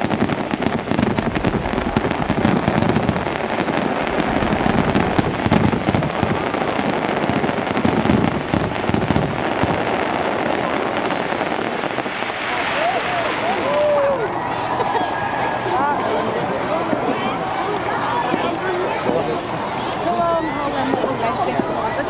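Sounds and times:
fireworks booms: 0:00.0 - 0:14.0
fireworks crackling: 0:00.0 - 0:22.0.

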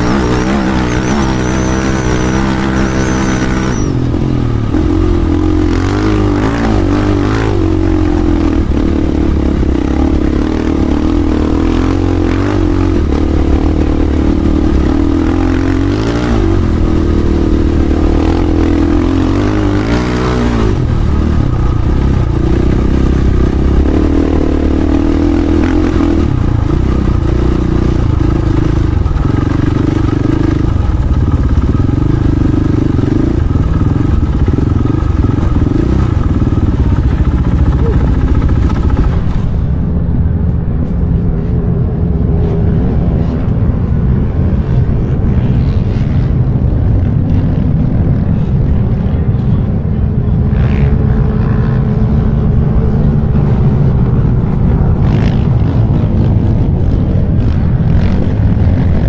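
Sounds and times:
dirt bike engine revving: 0:00.0 - 0:39.8.

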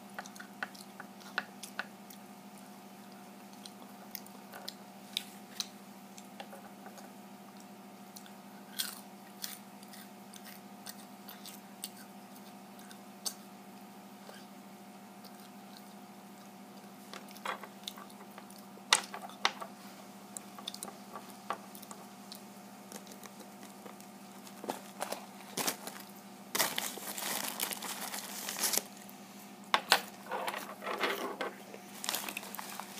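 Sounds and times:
steady low hum: 0:00.0 - 0:32.9
person chewing food: 0:00.2 - 0:02.2, 0:06.9 - 0:13.4, 0:15.2 - 0:18.7, 0:20.3 - 0:29.1
crisp crunches: 0:22.9 - 0:29.0, 0:31.8 - 0:32.9.

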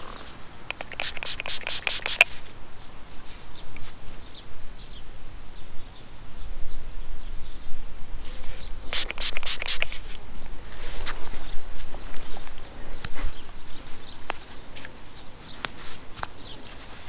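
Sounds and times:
spray bottle squirting: 0:00.7 - 0:02.5, 0:08.3 - 0:10.2.

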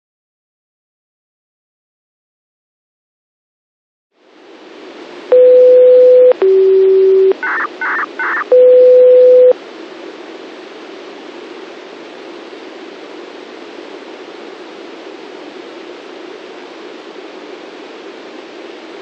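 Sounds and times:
steady signal tones: 0:05.3 - 0:09.6
radio hiss: 0:05.6 - 0:09.6.

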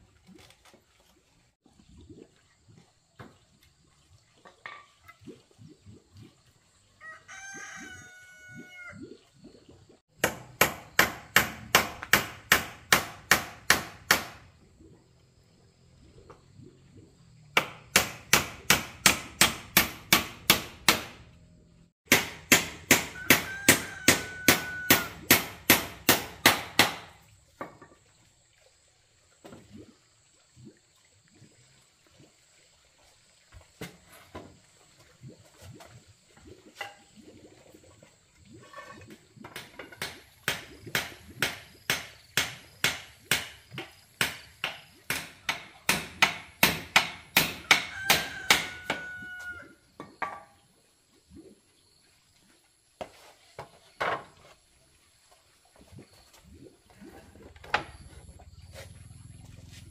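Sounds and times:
rooster crowing: 0:07.0 - 0:09.0, 0:23.1 - 0:25.2, 0:47.6 - 0:49.8
hammer striking nails into wood: 0:10.2 - 0:14.4, 0:17.6 - 0:21.2, 0:22.1 - 0:23.8, 0:25.3 - 0:27.1, 0:44.2 - 0:47.9.

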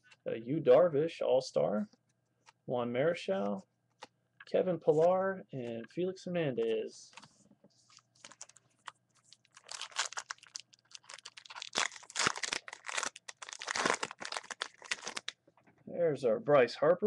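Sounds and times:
foil wrapper tearing and crinkling: 0:08.2 - 0:08.6, 0:09.3 - 0:15.3.

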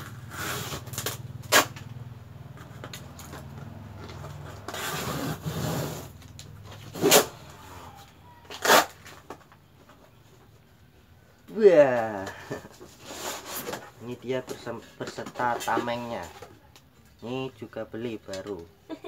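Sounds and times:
cardboard and tape rustling: 0:00.0 - 0:10.8, 0:11.4 - 0:17.1.

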